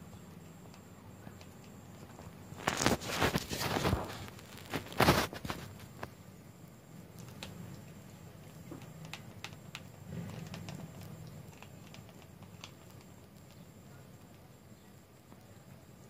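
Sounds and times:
teeth clicking on hard plastic: 7.1 - 14.5.

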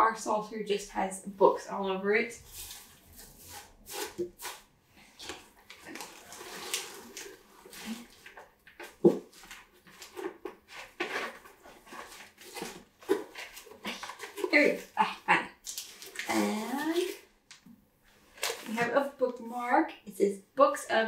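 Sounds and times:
paper rustling and crinkling: 2.4 - 15.0, 15.6 - 17.2, 18.1 - 19.5.

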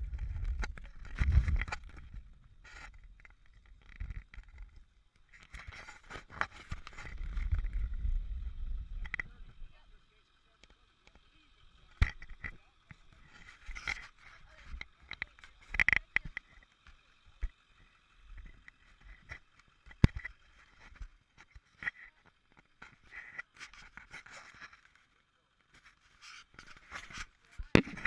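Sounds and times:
camera handling noise: 26.4 - 28.0.

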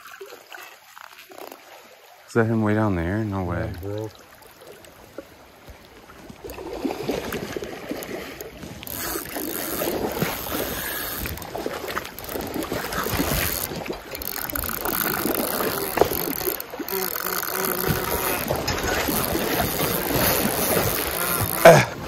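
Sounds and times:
river water rushing and splashing: 0.0 - 22.0
wind noise on microphone: 8.7 - 22.0.

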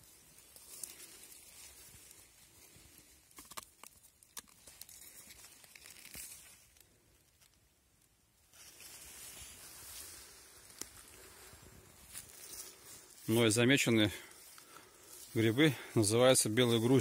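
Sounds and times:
soft rustle: 0.0 - 3.4, 4.0 - 17.0
mushroom tearing and crackling: 0.0 - 13.4.

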